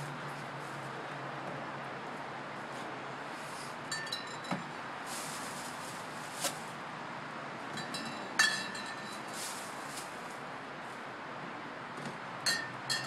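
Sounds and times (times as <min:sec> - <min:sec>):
glass bottles clinking: 0:03.9 - 0:04.7, 0:07.8 - 0:09.2, 0:12.4 - 0:13.0.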